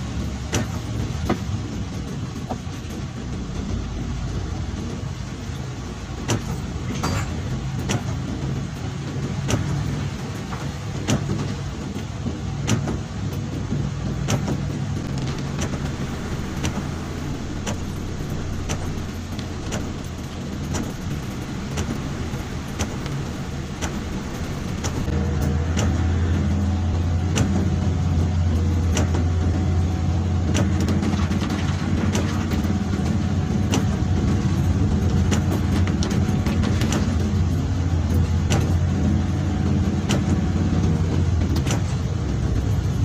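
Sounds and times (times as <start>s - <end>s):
car engine and road hum: 0.0s - 43.0s
tyre hiss on wet road: 14.7s - 27.1s.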